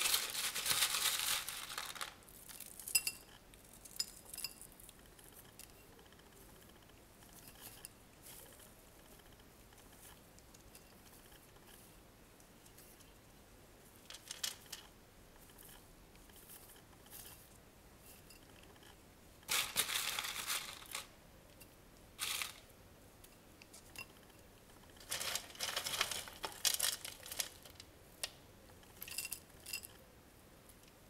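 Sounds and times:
crackly rustling of moss: 0.0s - 2.2s, 24.9s - 28.4s.

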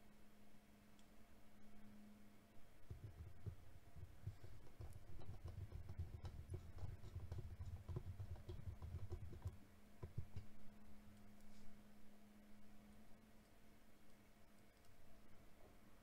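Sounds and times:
low rumble of handling: 2.6s - 11.9s.

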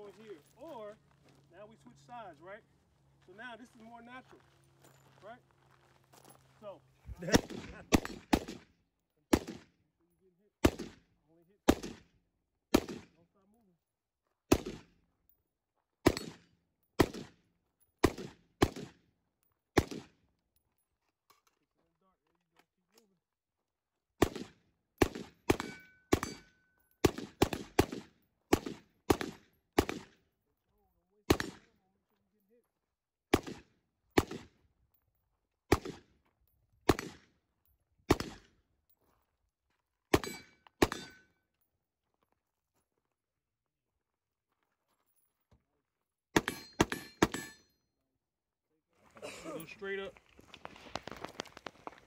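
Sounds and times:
rifle shots with echo: 7.2s - 8.7s, 9.3s - 9.7s, 10.6s - 12.1s, 12.7s - 13.2s, 14.5s - 14.9s, 16.0s - 17.4s, 18.0s - 19.0s, 19.8s - 20.1s, 24.2s - 30.2s, 31.3s - 31.8s, 33.3s - 34.6s, 35.7s - 36.1s, 36.8s - 37.3s, 38.1s - 38.5s, 40.1s - 41.2s.

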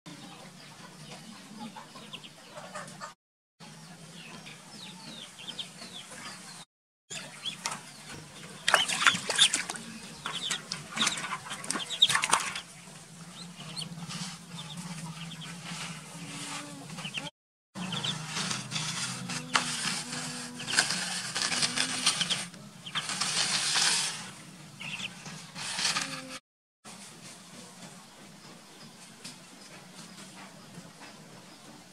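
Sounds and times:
ducklings peeping: 0.1s - 3.1s, 4.1s - 18.8s, 21.6s - 23.6s, 24.8s - 26.0s
water splashing in a basin: 7.6s - 13.2s.

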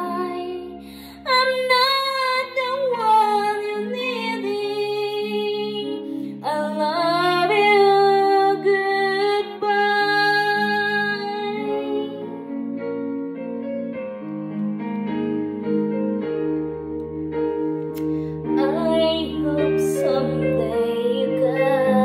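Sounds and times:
woman singing into microphone: 0.0s - 12.5s, 18.5s - 22.0s
piano and keyboard ballad: 0.0s - 22.0s.

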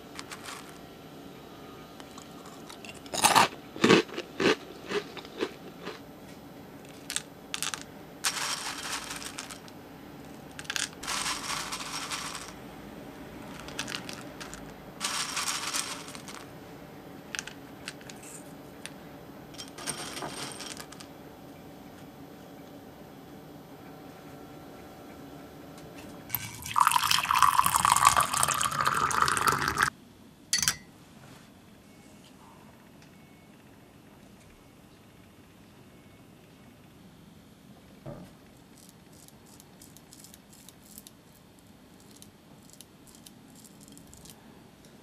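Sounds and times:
cereal pieces clicking: 6.9s - 9.7s, 10.6s - 12.5s, 13.6s - 16.4s
dry cereal rustling: 7.6s - 9.7s, 10.6s - 12.6s, 13.5s - 16.5s.

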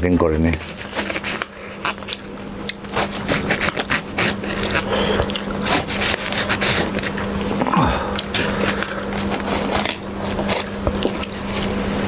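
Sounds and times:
steady low hum: 0.0s - 12.0s
knife sawing through food: 0.5s - 11.8s.

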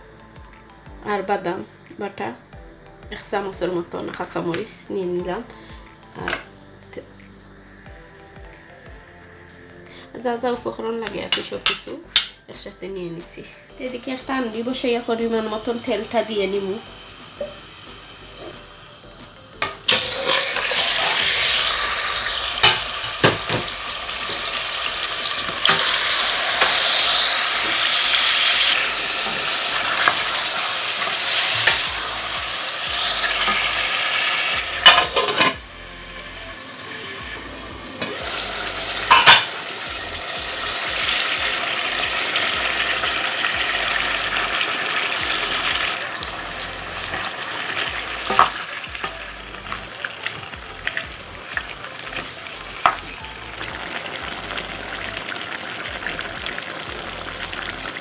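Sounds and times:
meat sizzling in hot oil: 13.7s - 58.0s.

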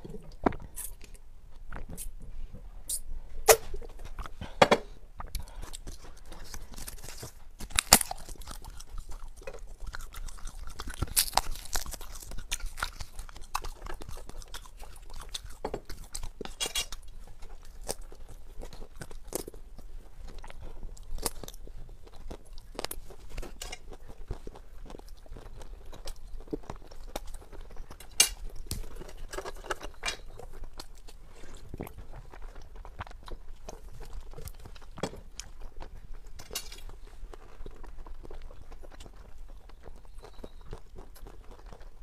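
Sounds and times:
person chewing crunchy food: 0.0s - 42.0s.

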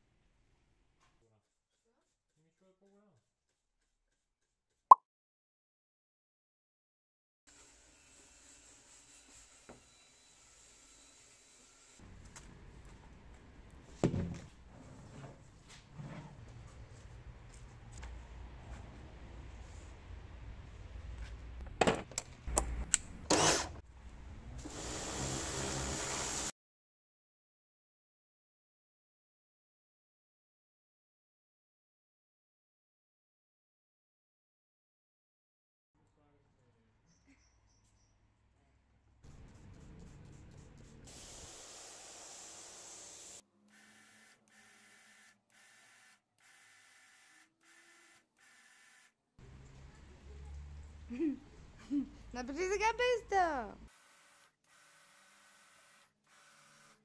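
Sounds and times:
pressure washer water jet hissing: 24.6s - 26.5s, 41.1s - 43.4s.

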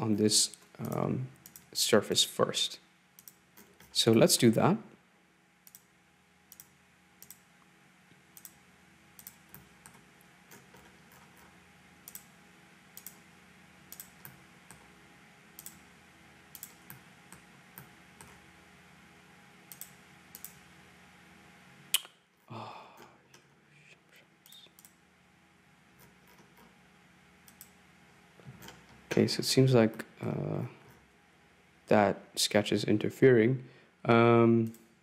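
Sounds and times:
faint steady hum: 0.0s - 35.0s
computer mouse clicking: 0.8s - 1.7s, 3.2s - 3.9s, 5.6s - 5.9s, 6.5s - 7.4s, 8.4s - 8.6s, 9.2s - 11.5s, 12.1s - 12.3s, 13.0s - 13.2s, 13.9s - 14.9s, 15.6s - 15.8s, 16.5s - 18.4s, 19.7s - 20.6s, 27.4s - 27.8s.

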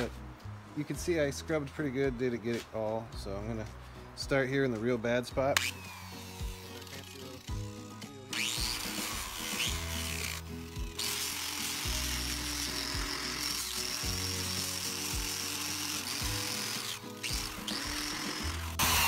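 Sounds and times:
background music: 0.0s - 19.0s
power tool scouring rust: 5.6s - 19.0s.

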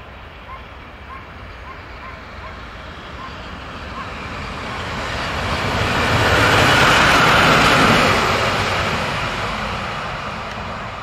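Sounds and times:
electric locomotive passing: 0.0s - 11.0s.

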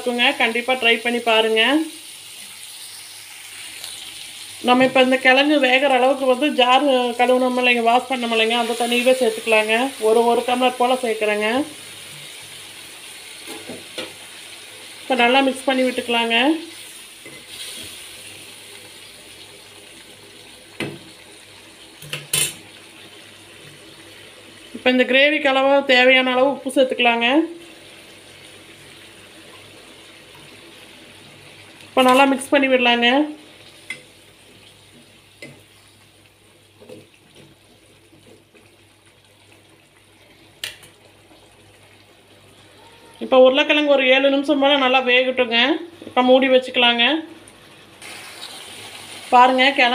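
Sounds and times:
gravy bubbling in a pan: 33.2s - 43.2s.

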